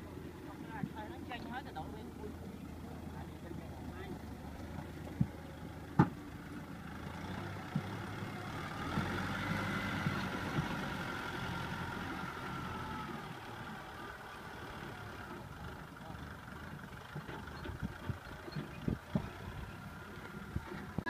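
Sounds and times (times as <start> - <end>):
tractor engine running: 0.0 - 21.0
knocks from tractor and trailer: 4.7 - 6.3, 9.9 - 11.0, 16.8 - 19.5.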